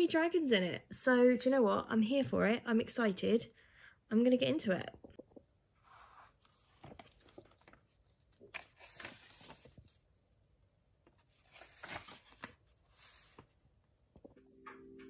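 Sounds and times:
book pages rustling: 5.7s - 10.2s, 11.0s - 13.6s.

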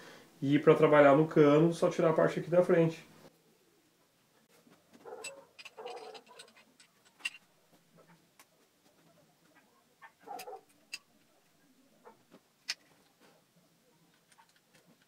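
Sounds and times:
clicks and scrapes of parts handled: 4.5s - 11.6s, 12.3s - 13.4s, 14.1s - 15.0s.

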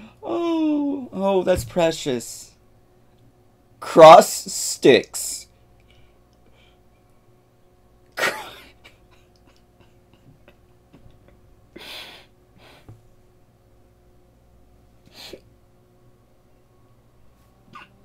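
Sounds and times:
man laughing: 8.2s - 12.2s.

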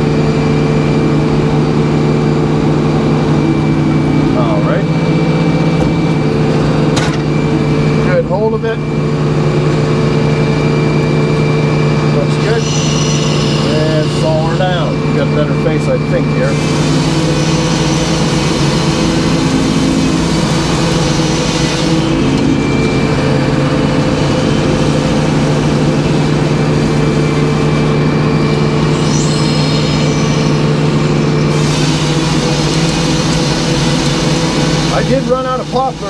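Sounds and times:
sawmill drone: 0.0s - 36.0s
saw blade cutting log: 12.4s - 14.8s.

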